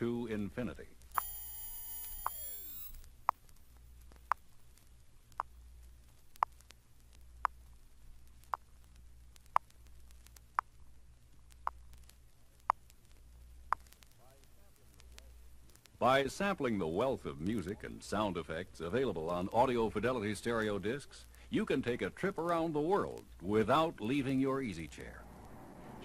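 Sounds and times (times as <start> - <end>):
record surface noise: 0.0 - 26.0
high test tone sweep: 1.2 - 3.0
record clicks: 1.2 - 3.4.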